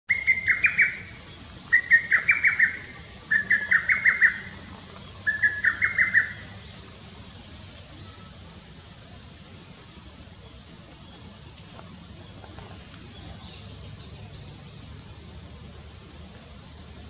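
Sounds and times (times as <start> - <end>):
cuckoo singing: 1.7 - 4.6, 5.2 - 6.5.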